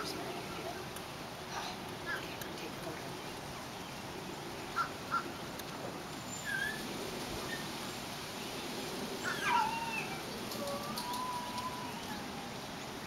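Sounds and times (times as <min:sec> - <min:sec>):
dog whining: 0:09.3 - 0:12.5.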